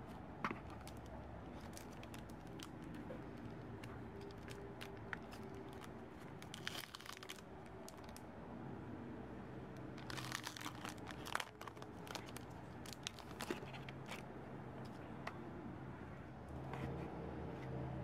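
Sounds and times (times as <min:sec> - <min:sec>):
plastic sleeve crinkling: 0:00.6 - 0:08.2, 0:10.0 - 0:14.2.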